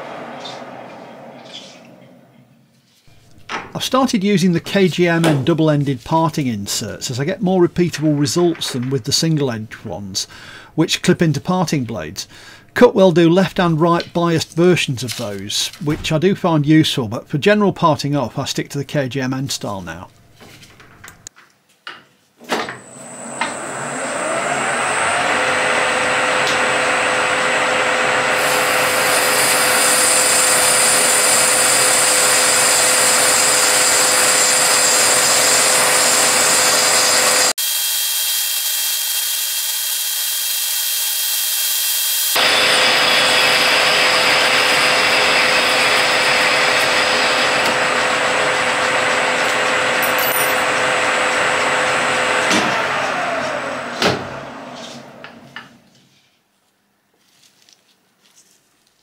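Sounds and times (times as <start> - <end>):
metal lathe whining: 22.8 - 55.4
cutting tool cutting metal bar: 28.2 - 50.8.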